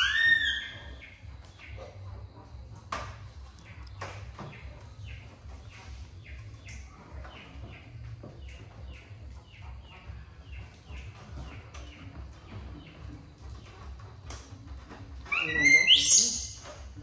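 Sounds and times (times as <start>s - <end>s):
animal high chirps: 0.0s - 1.2s, 15.3s - 16.7s.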